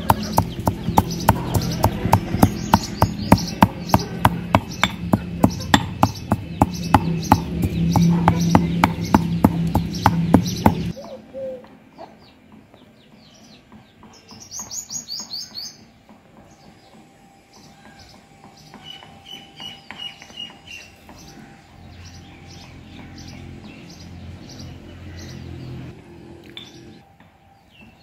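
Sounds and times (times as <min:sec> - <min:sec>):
sharp knocks: 0:00.0 - 0:10.9
repeated piping bird note: 0:00.0 - 0:11.7
birds chirping: 0:00.0 - 0:28.0.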